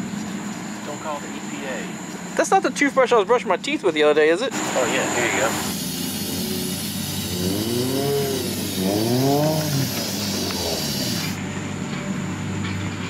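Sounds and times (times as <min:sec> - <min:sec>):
aerosol spray can hissing: 0:04.6 - 0:11.4
car engine revving: 0:04.6 - 0:11.5.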